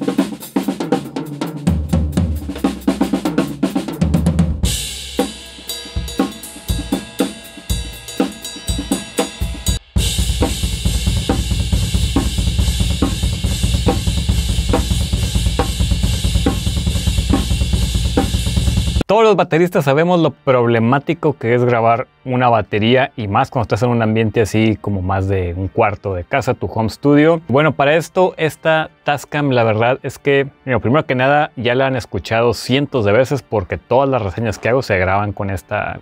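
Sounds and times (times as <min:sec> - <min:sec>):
drum kit playing: 0:00.0 - 0:19.1
cymbal wash: 0:04.8 - 0:15.9.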